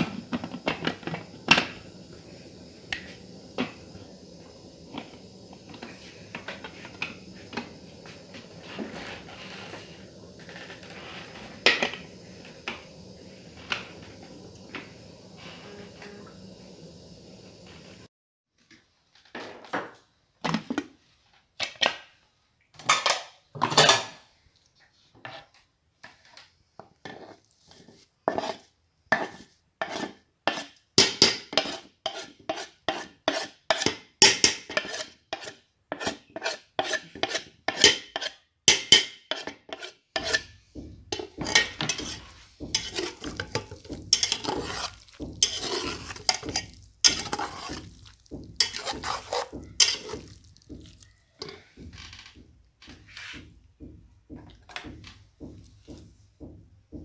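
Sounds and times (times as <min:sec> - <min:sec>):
metal spatula scraping pot: 0:00.0 - 0:16.4, 0:27.0 - 0:51.9.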